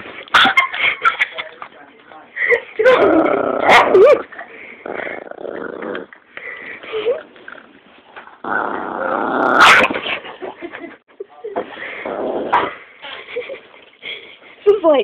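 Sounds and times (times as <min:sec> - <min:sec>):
small dog growling: 0:04.8 - 0:06.2, 0:08.4 - 0:10.0, 0:11.9 - 0:12.8.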